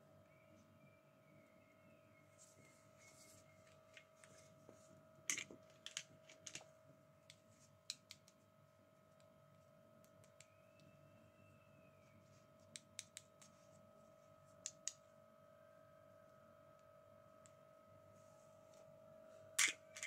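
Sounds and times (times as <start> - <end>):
faint hum: 0.0 - 20.0
plastic toy pieces clicking: 19.6 - 20.0.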